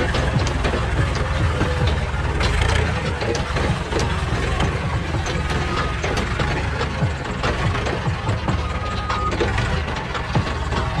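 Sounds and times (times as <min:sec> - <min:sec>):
forklift engine rumbling: 0:00.0 - 0:11.0
rattles and knocks: 0:00.0 - 0:11.0.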